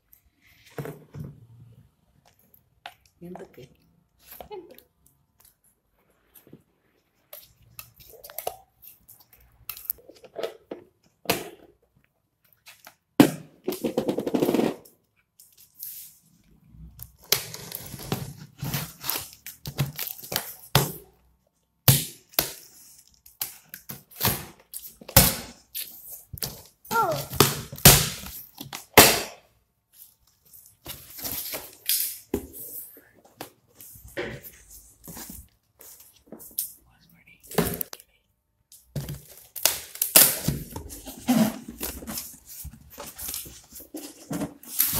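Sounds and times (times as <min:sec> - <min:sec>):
packing tape ripping off cardboard: 0:39.1 - 0:42.4, 0:43.0 - 0:44.9.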